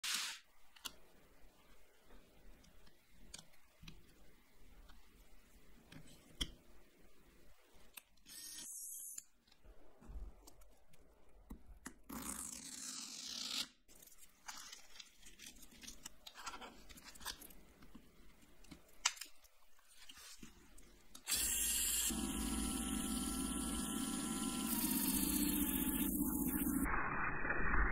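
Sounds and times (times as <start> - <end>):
electric motor running: 21.3 - 26.9.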